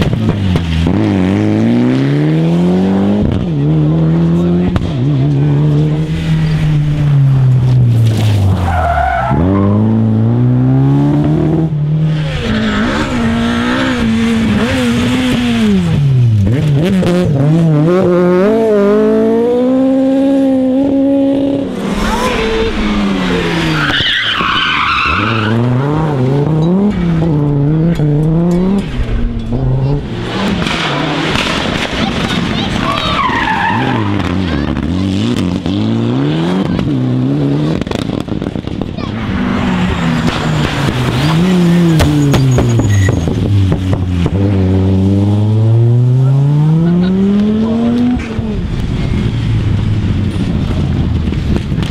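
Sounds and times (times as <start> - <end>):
rally car engines revving: 0.0 - 51.9
tyres skidding and squealing: 4.0 - 10.8, 12.0 - 16.9, 21.6 - 37.9, 38.6 - 51.1.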